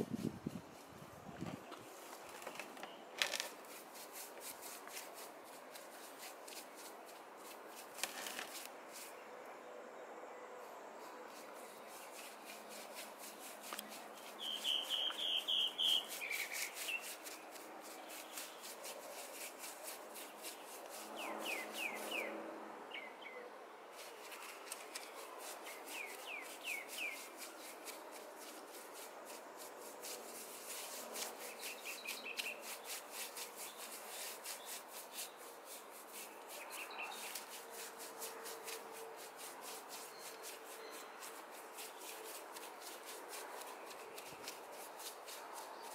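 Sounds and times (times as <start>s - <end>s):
hand tool scraping cement: 3.2s - 8.7s, 11.4s - 22.2s, 24.0s - 45.9s
bird chirping: 13.7s - 17.2s, 20.4s - 23.5s, 25.0s - 27.7s, 31.4s - 33.0s, 36.2s - 37.4s, 40.0s - 42.1s.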